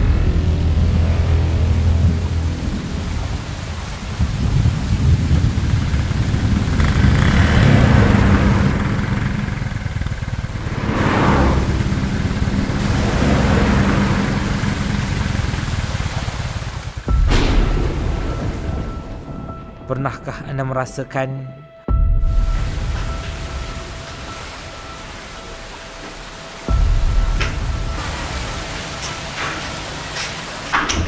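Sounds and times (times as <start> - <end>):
thunder: 0.0 - 15.8, 17.1 - 19.9
heavy rain falling: 0.0 - 20.4, 22.3 - 31.0
motorcycle engine running: 4.2 - 18.9.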